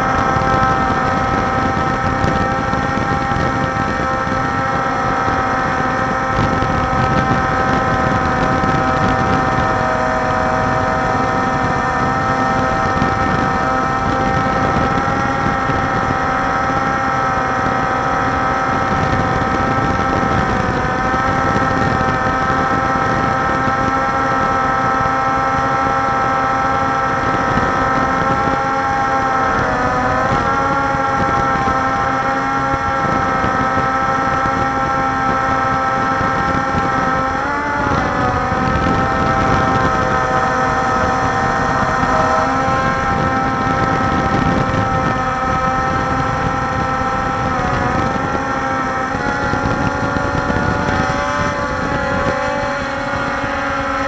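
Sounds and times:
drone propellers whining: 0.0s - 54.0s
wind rushing: 0.0s - 54.0s.

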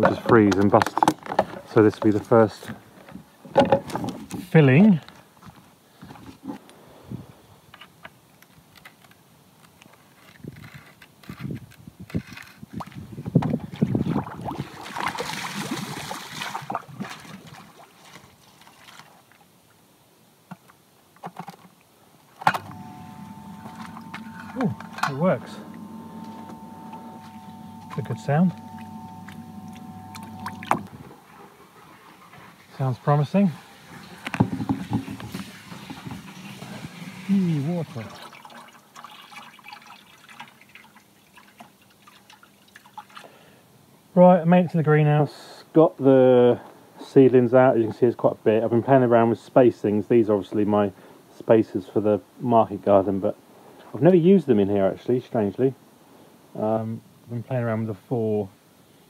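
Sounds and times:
water splashing in a barrel: 13.6s - 19.5s, 32.6s - 43.4s
pump motor humming: 22.5s - 31.3s.

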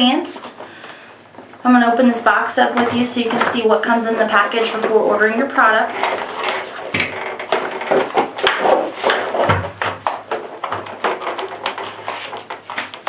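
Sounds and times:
plastic packaging crackling: 2.7s - 13.0s
knocks on plastic: 6.9s - 11.9s.

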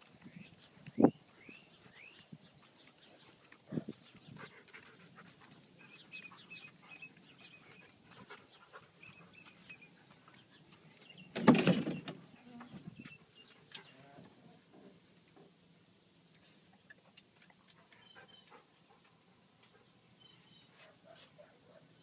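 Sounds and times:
faint footsteps: 0.0s - 11.2s
small birds chirping: 0.1s - 14.6s, 16.2s - 22.0s.

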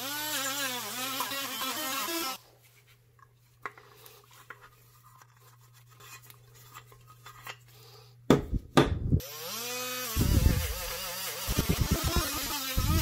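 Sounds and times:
rotary tool spinning up: 0.0s - 2.4s, 9.2s - 13.0s.

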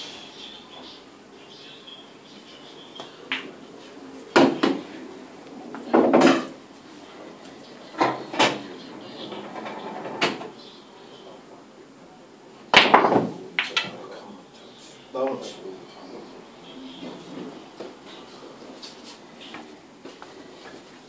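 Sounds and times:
pool balls clacking: 4.2s - 6.6s, 7.9s - 10.6s, 12.7s - 14.2s.

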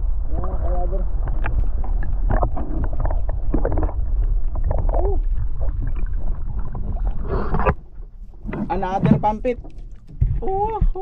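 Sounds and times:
muffled underwater rumble: 0.0s - 11.0s.

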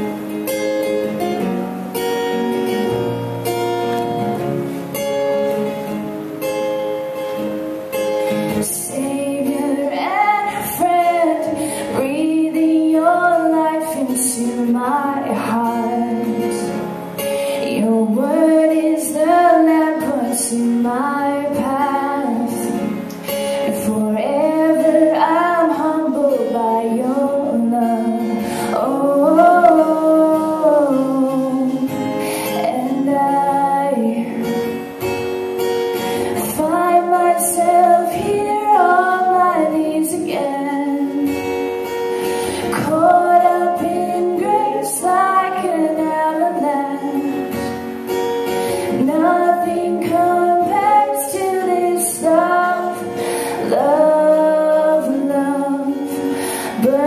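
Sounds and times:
strummed acoustic guitar: 0.0s - 57.0s
woman singing: 8.4s - 34.8s, 36.2s - 57.0s.

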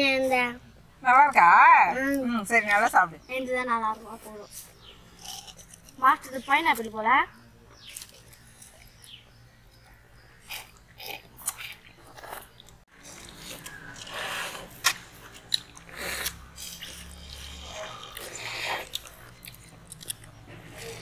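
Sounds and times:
people biting and chewing ice pops: 5.0s - 6.8s, 7.8s - 21.0s.

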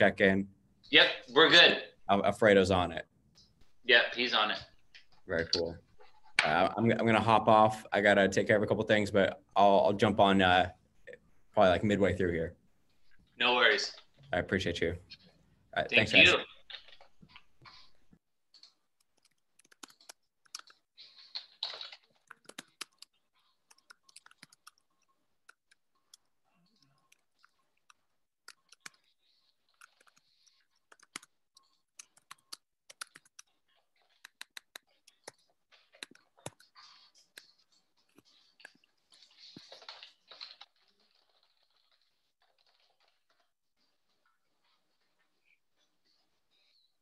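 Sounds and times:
mouse clicking: 18.6s - 38.9s
keyboard typing: 18.6s - 43.5s.

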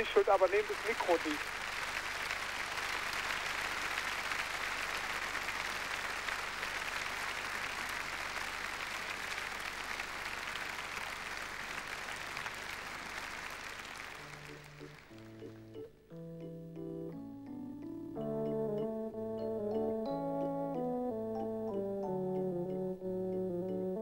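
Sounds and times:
audience applauding: 0.0s - 15.9s.

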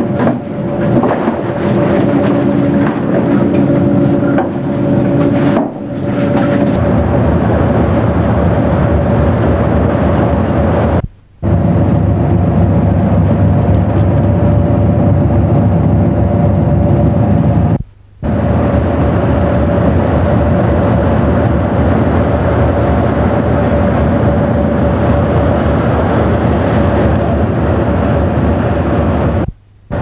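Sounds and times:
ship engines droning: 0.0s - 30.0s.

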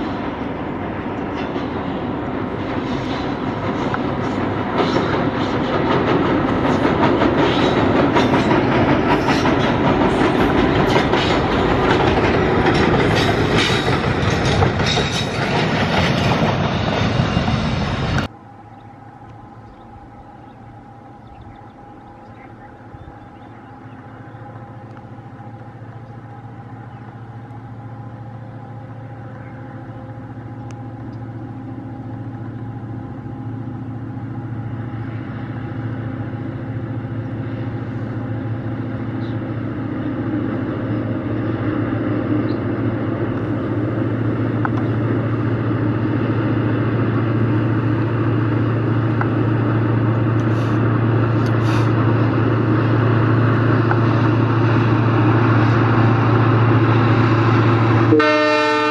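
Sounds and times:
diesel locomotive engine drone: 0.0s - 58.9s.

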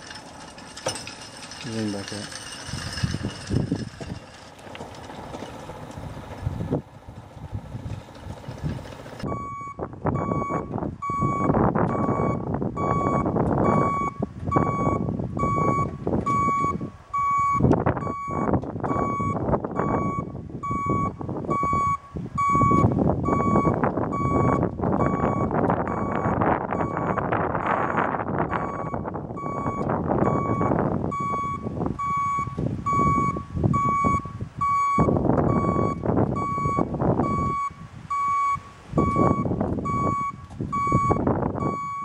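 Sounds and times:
feeder mechanism running: 0.0s - 9.2s
short electronic beeps: 9.3s - 42.0s.

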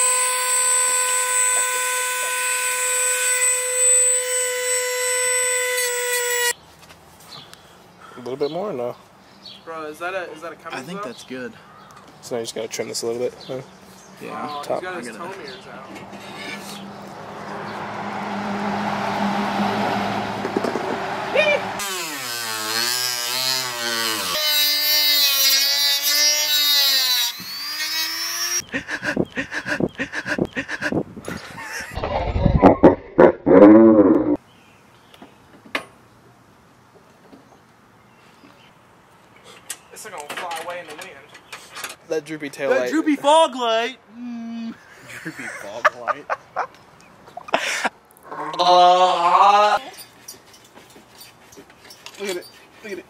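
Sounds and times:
rotary tool whining: 0.0s - 6.6s, 21.8s - 28.6s
bursts of laughter: 28.6s - 34.4s, 44.9s - 46.8s.

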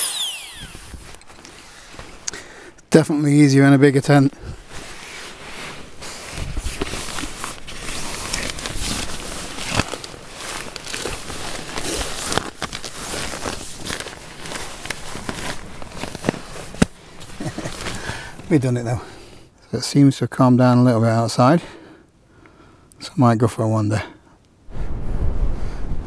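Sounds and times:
tent fabric rustling and crinkling: 0.1s - 2.3s, 4.0s - 19.4s.

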